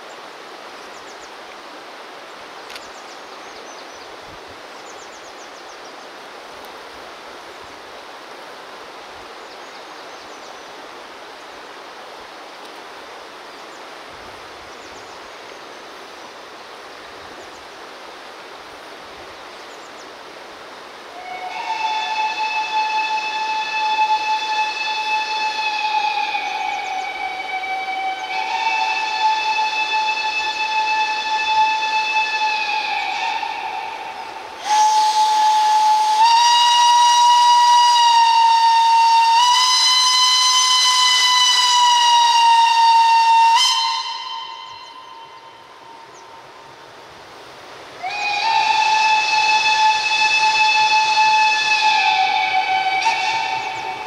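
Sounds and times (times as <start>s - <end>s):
steam hissing: 3.4s - 54.0s
steam locomotive whistle blasts: 21.0s - 46.2s, 48.0s - 54.0s.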